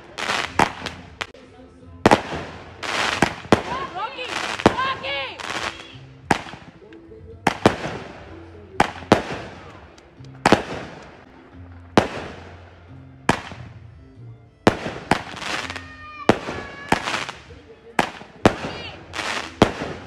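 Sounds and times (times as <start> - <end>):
firework bangs: 0.0 - 1.4, 2.0 - 13.8, 14.6 - 20.0
shell burst rush: 2.1 - 6.8, 7.5 - 12.7, 14.7 - 20.0.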